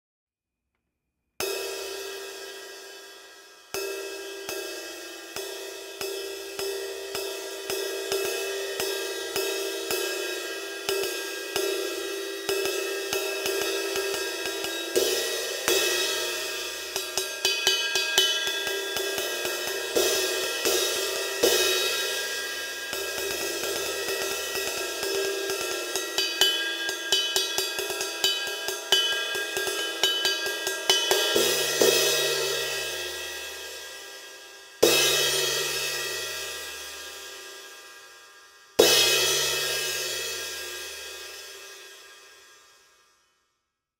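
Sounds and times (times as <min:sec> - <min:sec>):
sizzle cymbal ride strokes: 0:01.7 - 0:42.9
cymbal crash accents: 0:11.9 - 0:42.6.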